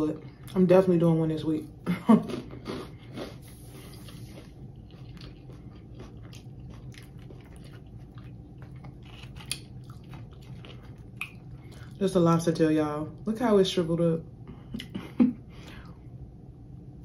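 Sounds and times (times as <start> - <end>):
person chewing crunchy food: 2.1 - 12.0.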